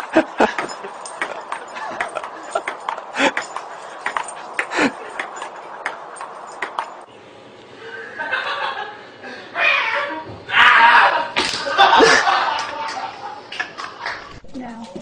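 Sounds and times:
ping-pong ball clicking: 3.6s - 6.9s.

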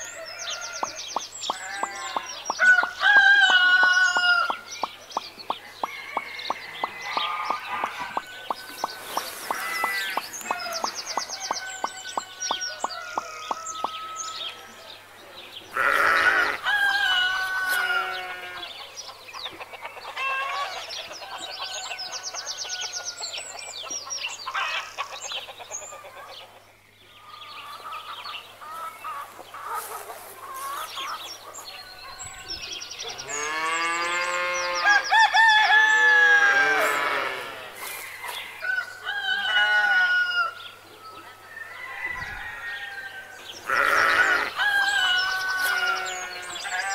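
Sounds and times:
chickens clucking: 0.0s - 14.2s, 16.5s - 22.6s, 27.7s - 33.2s
roosters crowing: 0.0s - 14.7s, 15.7s - 18.8s, 33.1s - 46.9s.

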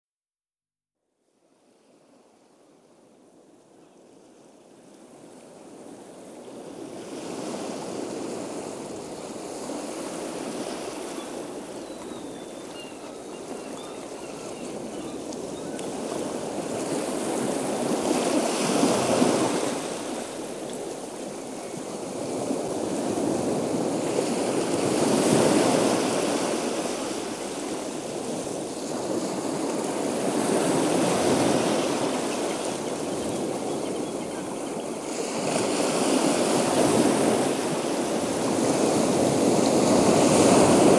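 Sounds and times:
waves breaking on shore: 4.2s - 40.9s.

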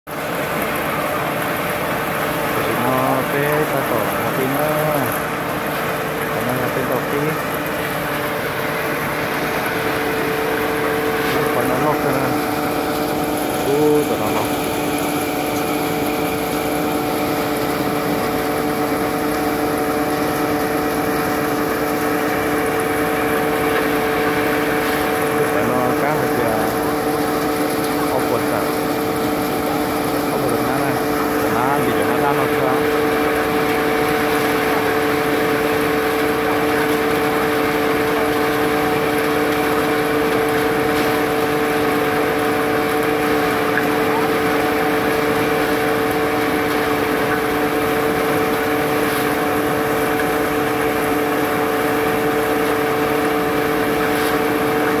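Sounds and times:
threshing machine running: 0.1s - 55.0s.

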